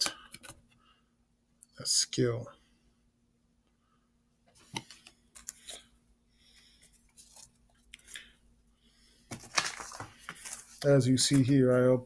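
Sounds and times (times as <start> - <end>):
trading cards clicking and rustling: 0.0 - 0.7, 4.6 - 5.9, 9.3 - 11.6.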